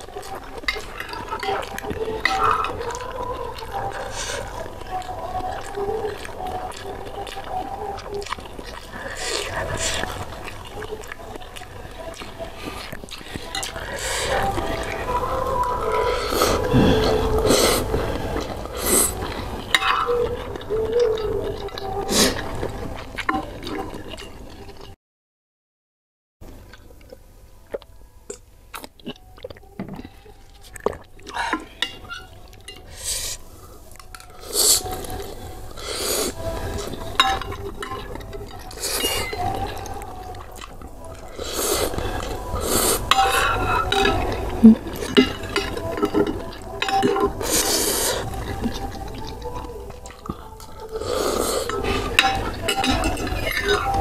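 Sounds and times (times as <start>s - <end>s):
slurping and chewing noodles: 0.0s - 25.0s, 26.5s - 54.0s
cutlery clinking on glass dish: 37.2s - 39.6s, 45.0s - 47.4s, 52.1s - 54.0s.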